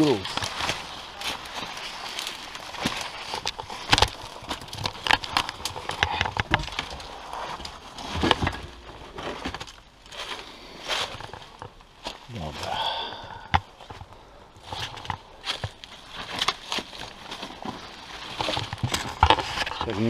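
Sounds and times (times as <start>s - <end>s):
footsteps crunching on rubble: 0.0s - 20.0s
stones knocking: 0.3s - 9.8s.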